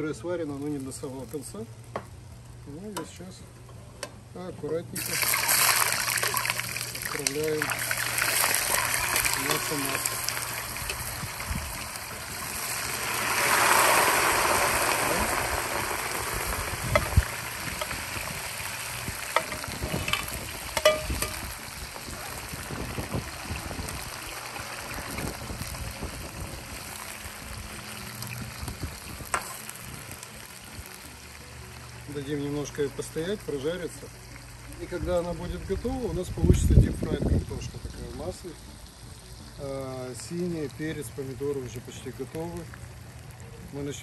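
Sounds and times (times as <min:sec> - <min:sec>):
potatoes frying in hot oil: 0:00.0 - 0:03.2, 0:04.9 - 0:44.0
metal spoon clinking on wok: 0:19.4 - 0:21.4.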